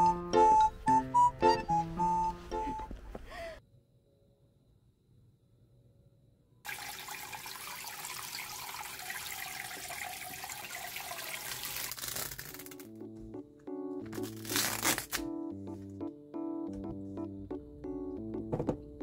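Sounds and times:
music with plucked notes: 0.0 - 3.0, 15.2 - 19.0
tap water running into colander: 6.7 - 12.6.

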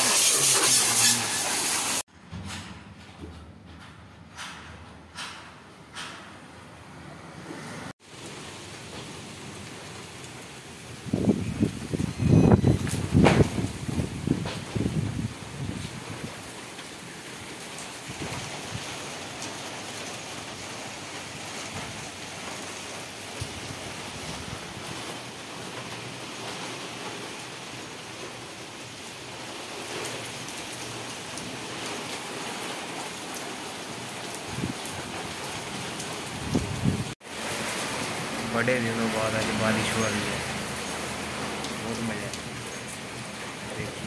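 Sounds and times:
steady rain falling: 0.0 - 2.1, 7.8 - 44.0
raindrops ticking: 37.3 - 44.0.

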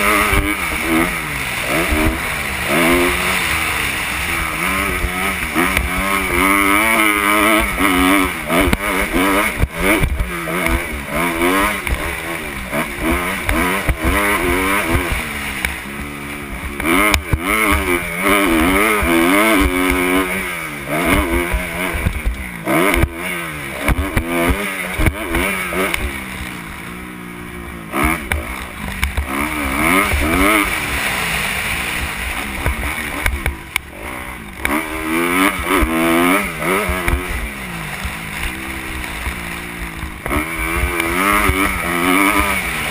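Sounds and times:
motocross bike engine revving: 0.0 - 42.9.

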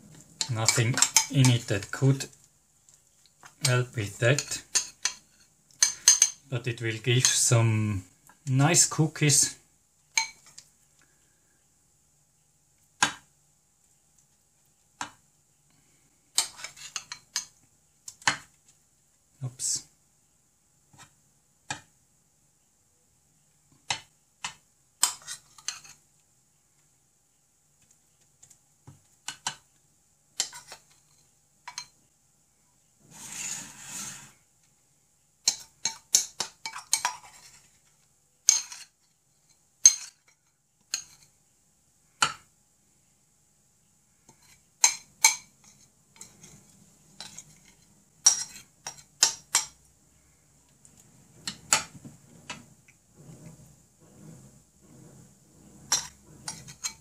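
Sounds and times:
spoon scraping glass bowl: 33.1 - 34.4, 45.4 - 49.1, 52.4 - 57.0.

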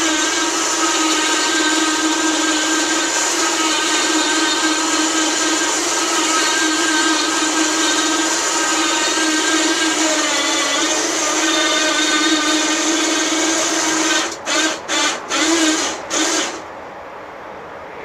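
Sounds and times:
electric winch running: 0.0 - 16.6.

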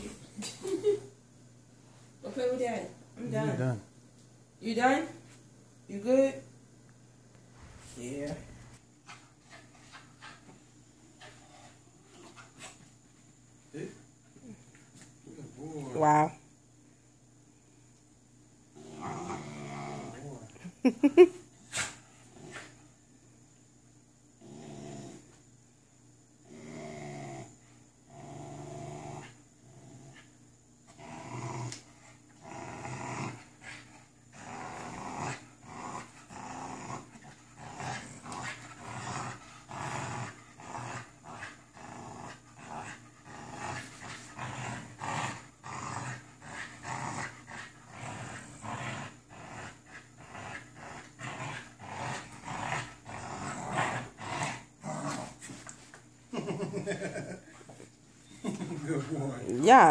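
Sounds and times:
puppy growling in play: 18.7 - 22.8, 24.3 - 25.4, 26.4 - 59.9.

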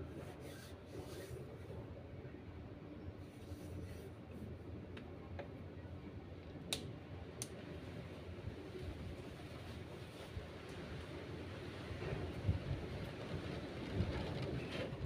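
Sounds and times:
wind rumble on microphone: 8.0 - 15.0.

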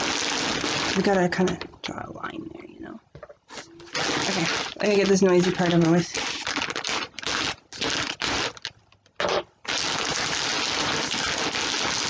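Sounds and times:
packaging crinkling as torn open: 3.7 - 12.0.

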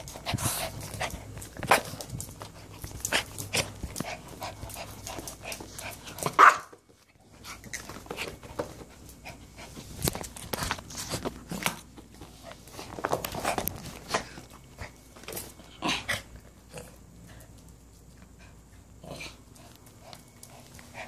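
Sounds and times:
dogs panting: 0.0 - 6.3
scuffles and claw clicks: 0.0 - 15.6
dogs barking and yelping: 2.6 - 6.8.

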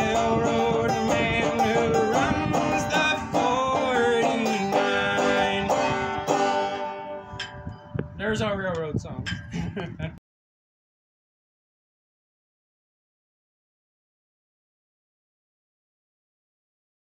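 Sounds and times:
banjo folk tune: 0.0 - 7.7.

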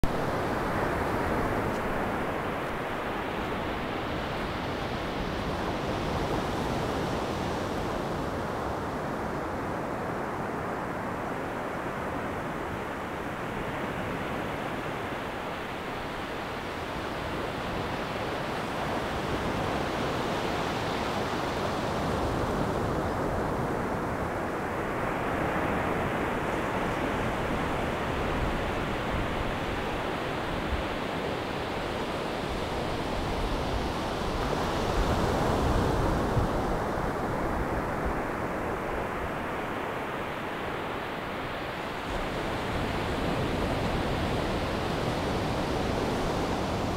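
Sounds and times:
waves breaking on beach: 0.0 - 46.9.

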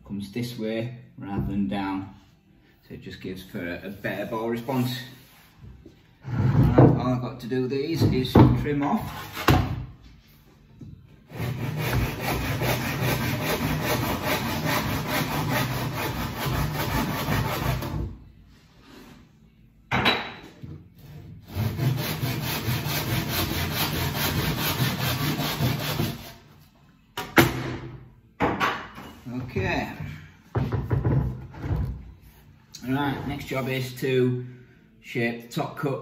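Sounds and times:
handsaw sawing wood: 11.3 - 18.0, 21.4 - 26.4.

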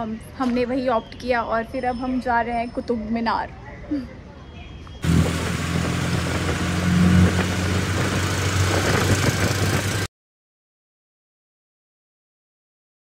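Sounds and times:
auto-rickshaw engine humming: 5.0 - 10.1.

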